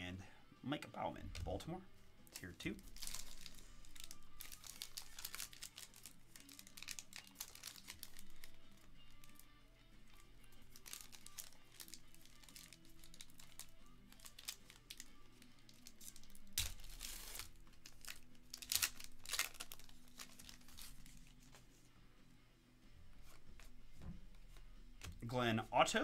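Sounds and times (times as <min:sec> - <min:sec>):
faint music: 0:00.0 - 0:26.0
plastic wrapper crinkling and tearing: 0:02.8 - 0:09.4, 0:10.5 - 0:21.6.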